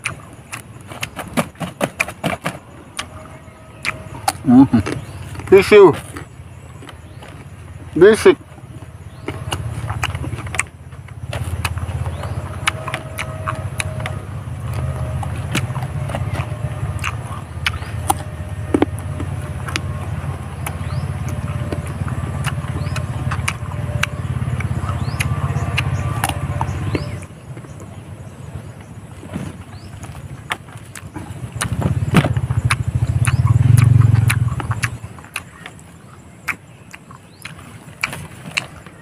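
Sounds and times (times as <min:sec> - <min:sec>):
chewing and crunching fruit: 0:00.0 - 0:39.0
steady low rumble: 0:02.6 - 0:37.4.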